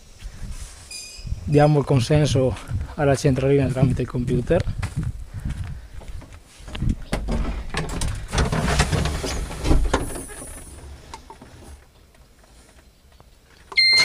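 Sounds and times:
rustling: 6.2s - 13.7s.

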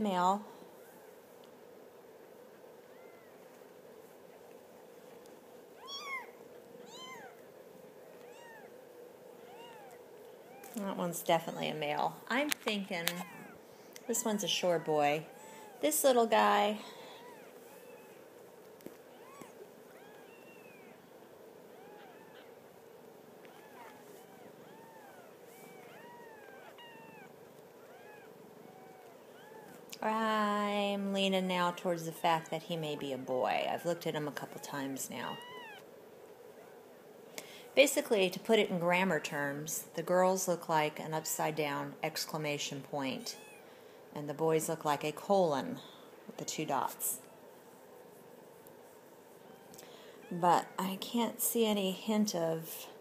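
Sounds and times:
kittens mewing: 9.4s - 10.8s, 13.0s - 15.9s, 16.8s - 18.2s, 19.0s - 22.7s, 23.4s - 29.9s, 34.5s - 35.9s
kitten mewing: 21.7s - 22.6s, 23.5s - 29.8s.

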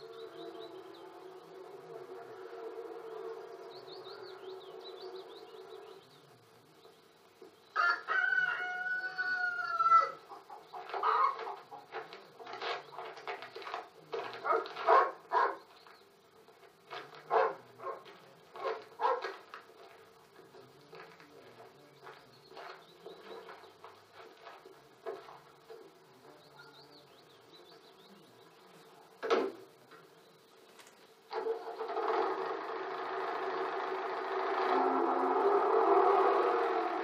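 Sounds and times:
low hum: 0.0s - 7.8s, 29.7s - 37.0s
rooster crowing: 7.7s - 10.3s, 32.2s - 37.0s
hen clucking: 9.6s - 13.2s
faint high chirps: 26.2s - 29.0s.

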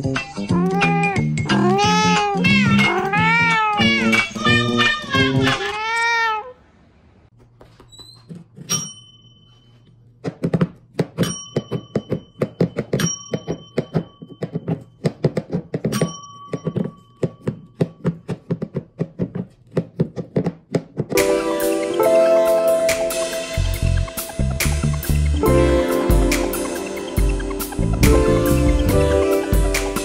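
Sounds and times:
knocks and taps: 10.2s - 21.2s.

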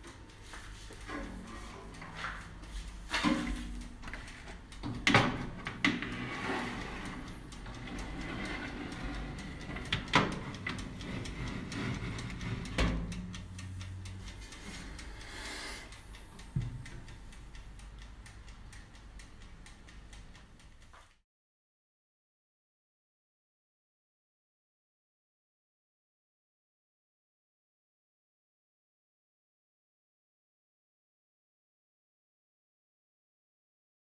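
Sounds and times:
metal tray scraping and clanking: 1.1s - 2.2s, 3.1s - 3.8s, 4.9s - 13.3s
oven door shutting: 4.9s - 13.3s.

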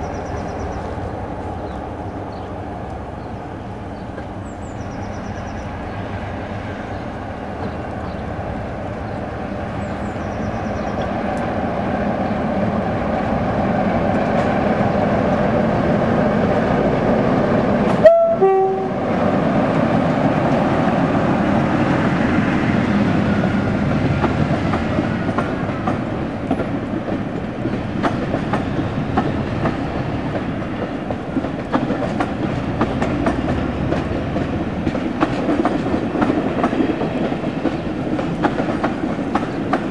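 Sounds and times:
diesel locomotive engine passing: 0.0s - 39.9s
wheels clacking over rail joints: 3.9s - 18.1s, 19.1s - 39.9s
two-tone horn blast: 18.0s - 19.1s.

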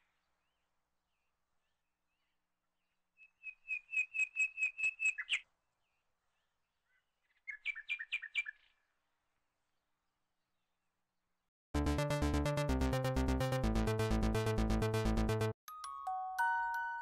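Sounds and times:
bird chirping: 0.0s - 8.9s.

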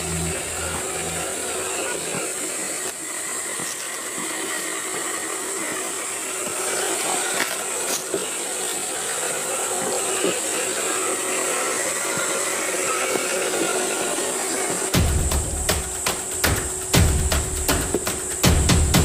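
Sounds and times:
toy car electric motor: 0.0s - 14.9s
steady hiss: 0.0s - 19.0s.

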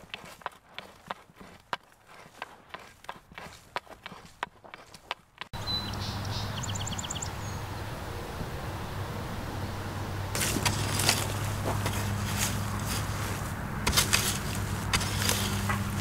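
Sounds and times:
hand hoe scraping dry soil: 0.0s - 5.6s, 10.3s - 16.0s
hoe chopping into dry soil: 0.0s - 5.6s, 10.4s - 16.0s.

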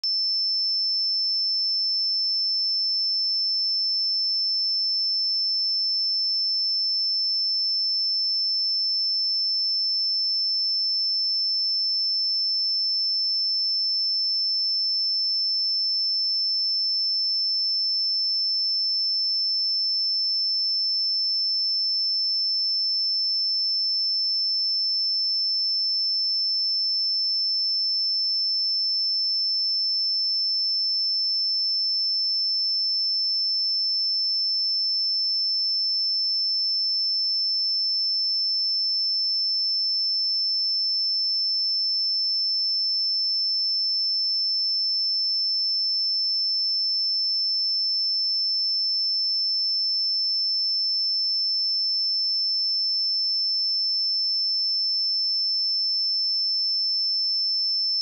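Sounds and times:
high-pitched sine test tone: 0.0s - 58.0s.

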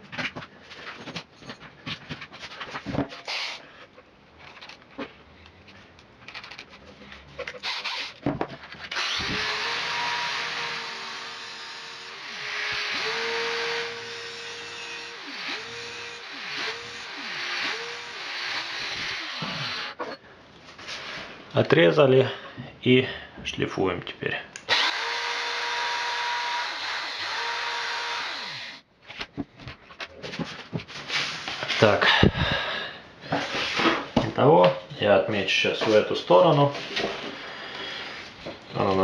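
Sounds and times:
cordless drill running: 8.9s - 20.0s, 24.7s - 28.8s
angle grinder whine: 9.0s - 20.2s, 24.7s - 28.8s.

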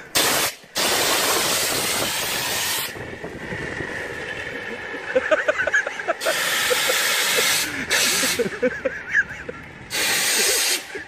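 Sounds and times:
fire extinguisher hissing: 0.1s - 3.0s, 6.2s - 8.5s, 9.9s - 10.9s.

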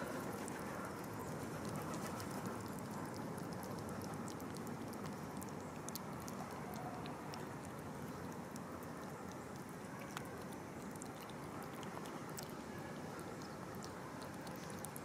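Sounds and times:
kittens chewing and smacking: 0.0s - 15.0s
steady background noise: 0.0s - 15.0s.

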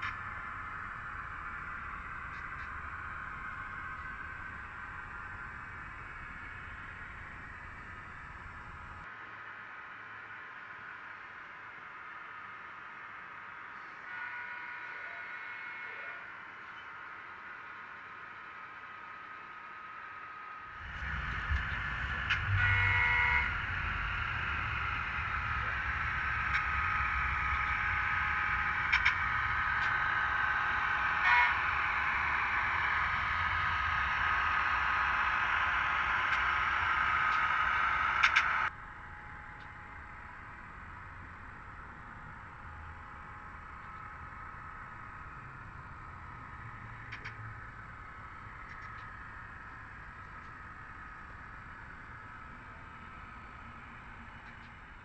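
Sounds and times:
engine drone: 0.0s - 11.3s, 13.7s - 55.0s
model locomotive horn blast: 13.9s - 16.3s, 20.9s - 38.7s
rolling wheels rumble: 20.8s - 38.7s.

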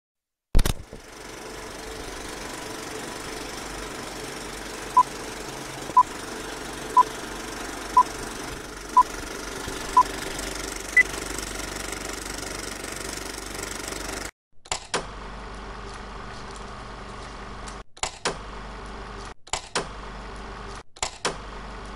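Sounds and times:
film projector clatter: 0.6s - 14.8s.

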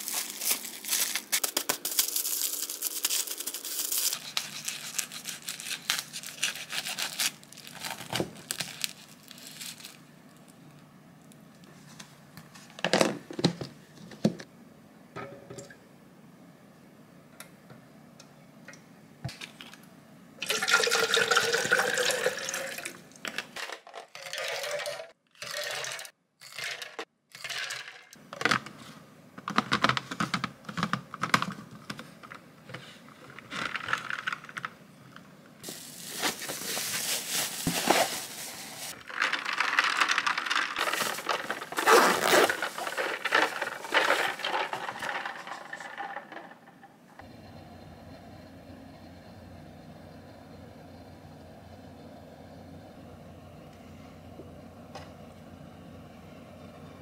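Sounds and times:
liquid pouring into plastic cup: 20.4s - 23.0s.

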